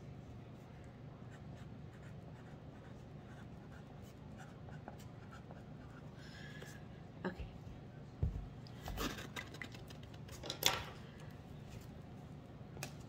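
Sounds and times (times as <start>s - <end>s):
room hum: 0.0s - 13.0s
pen scratching on paper: 1.3s - 6.0s.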